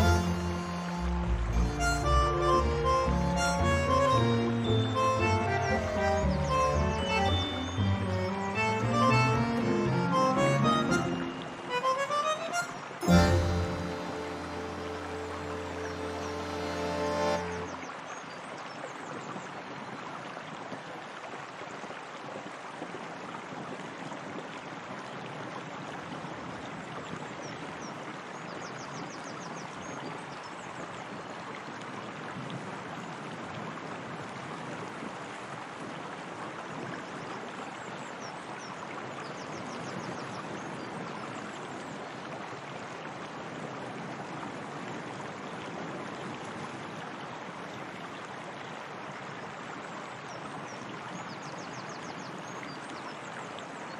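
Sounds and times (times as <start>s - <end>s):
water flowing over stone: 0.0s - 28.4s.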